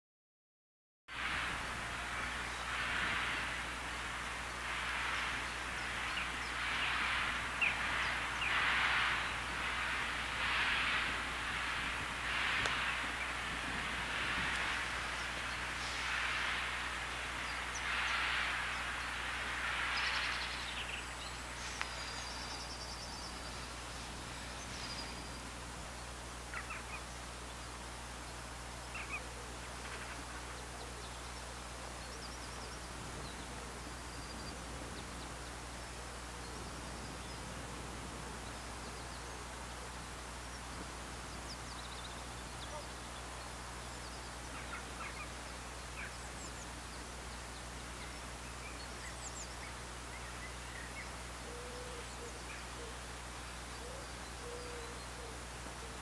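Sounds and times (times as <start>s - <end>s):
hiss: 1.1s - 27.0s
low background rumble: 1.1s - 56.0s
bird calls and chirps: 1.8s - 10.8s, 11.8s - 37.6s, 38.2s - 56.0s.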